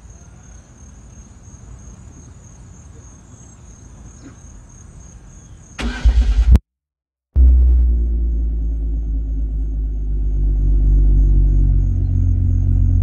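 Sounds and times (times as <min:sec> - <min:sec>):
car engine cranking and firing: 0:05.8 - 0:06.6
low rumble: 0:07.4 - 0:13.0.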